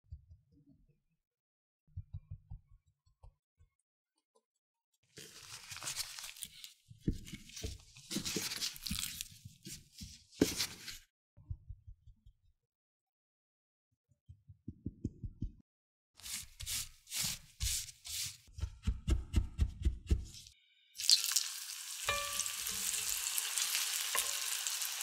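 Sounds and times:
glove crinkling and rustling: 5.2 - 11.0.

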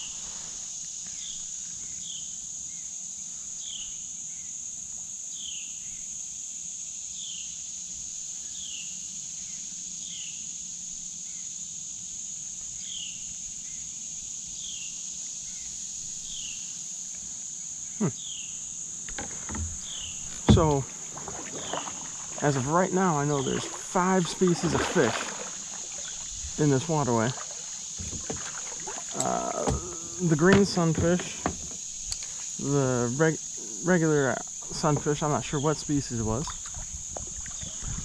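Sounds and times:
insects droning: 0.0 - 38.0.

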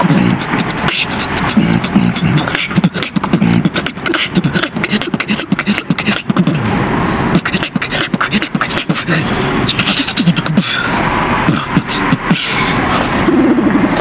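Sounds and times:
person beatboxing: 0.0 - 14.0.

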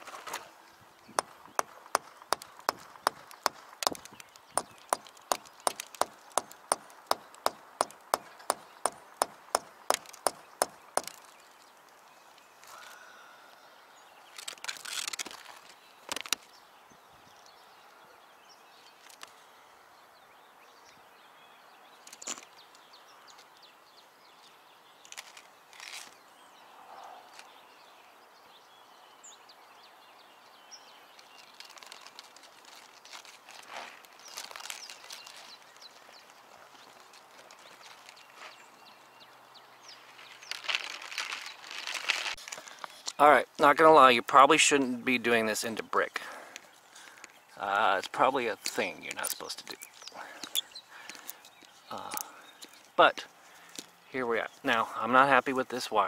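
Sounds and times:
hammer striking brick: 1.2 - 4.0, 4.6 - 11.1.

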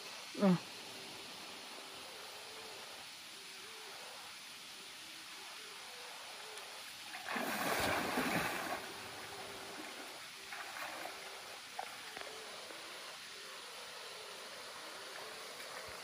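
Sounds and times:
small splashes in water: 7.1 - 11.3
net splashing onto water: 7.2 - 8.9.

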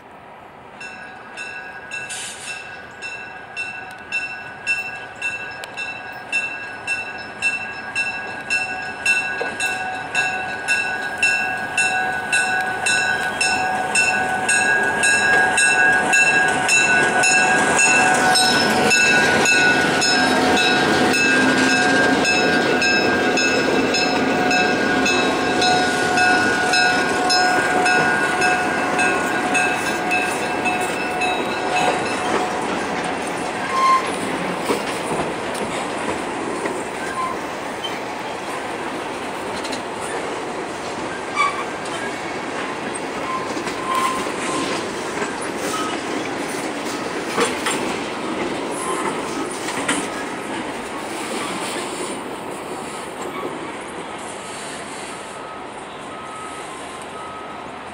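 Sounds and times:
diesel locomotive engines: 0.0 - 57.9
bell ringing: 0.8 - 32.7
train wheels: 0.8 - 57.9.

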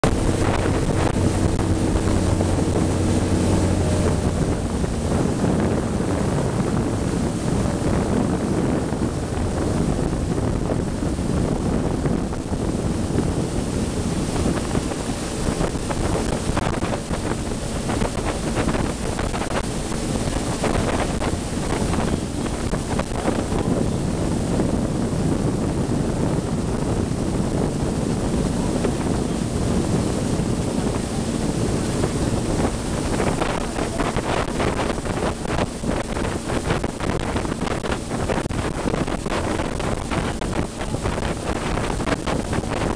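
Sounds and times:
choppy water washing: 0.0 - 42.9
wind buffeting microphone: 0.0 - 42.9.

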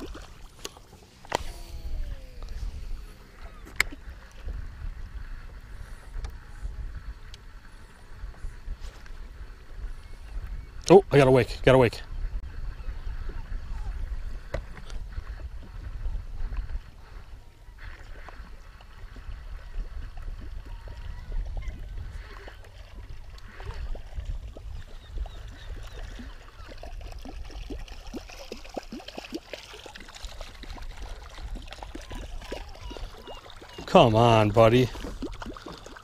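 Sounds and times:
lure splashing through water: 0.0 - 4.5, 17.8 - 36.0
wind rumbling on microphone: 0.0 - 29.0, 29.9 - 35.8
water lapping at a metal boat: 0.0 - 36.0.

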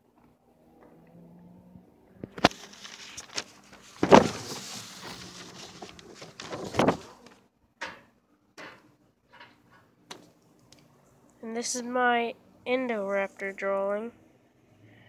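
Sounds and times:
paper rustling: 2.3 - 7.4.

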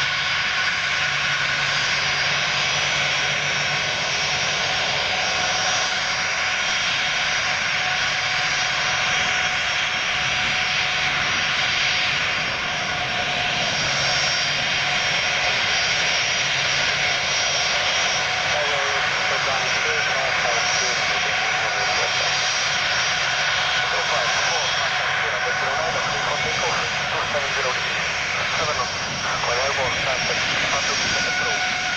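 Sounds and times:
jet engines at taxi power: 0.0 - 31.9.

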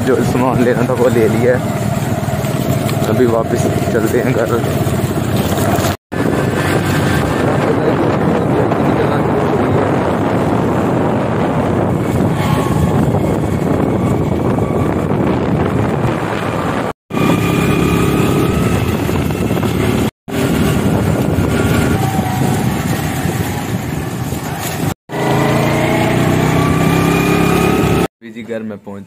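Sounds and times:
small motorcycle engine running: 0.0 - 28.1
wind rushing on microphone: 2.6 - 25.5.

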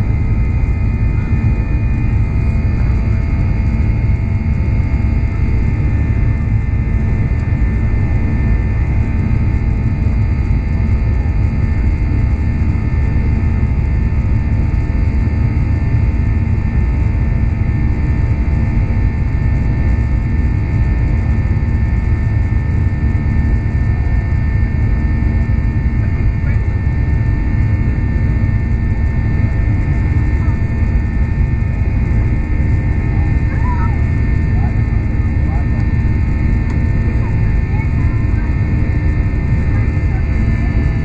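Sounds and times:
jet engine rumble with whine: 0.0 - 41.0.

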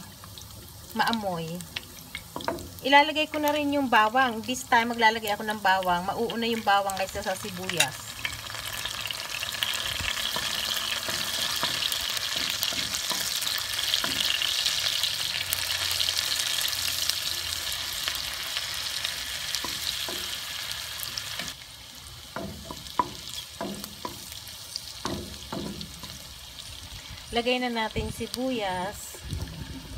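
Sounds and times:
garlic and ginger sizzling in wok: 0.0 - 29.9
spoon knocking against pan: 25.0 - 26.1.

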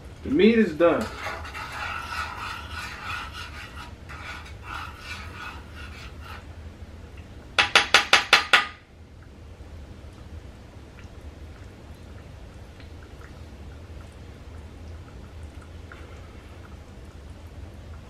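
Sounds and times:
utensil scraping meat in skillet: 0.8 - 6.6
metallic knocks on pan: 7.6 - 8.8.

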